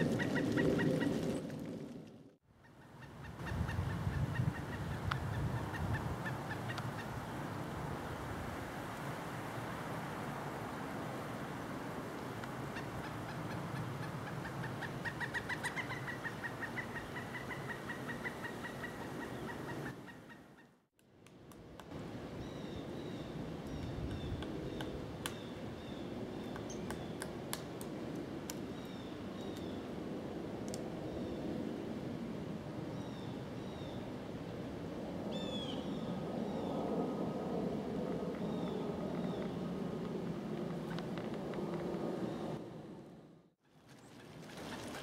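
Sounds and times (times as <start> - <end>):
woodpecker calling: 12.8 - 20.8.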